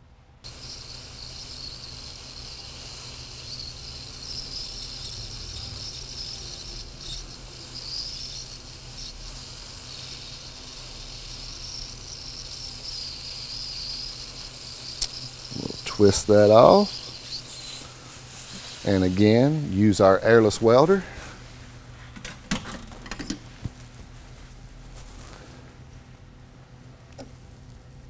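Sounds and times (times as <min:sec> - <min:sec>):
hot-air welder hissing: 0:00.4 - 0:26.0, 0:26.8 - 0:28.0.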